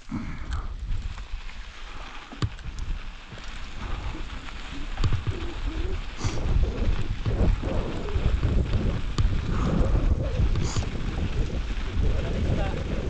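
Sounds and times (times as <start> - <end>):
tyres rolling over gravel: 0.0 - 13.0
wind rumbling on microphone: 0.0 - 13.0.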